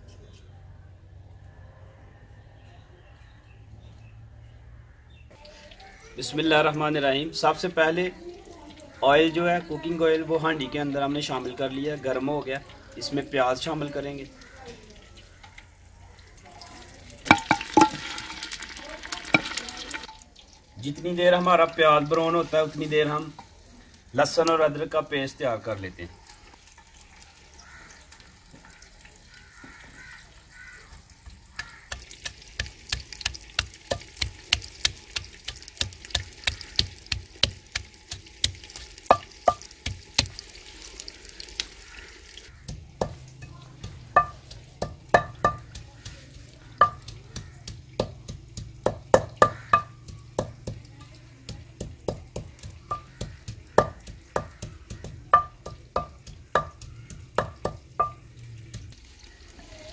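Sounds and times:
onions frying in oil: 5.3s - 59.9s
pestle pounding in mortar: 17.3s - 18.3s, 31.5s - 40.5s, 42.5s - 59.0s.

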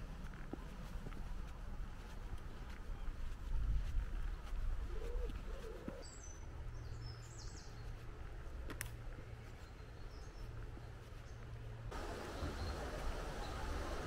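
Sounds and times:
bird cooing: 4.9s - 6.1s.

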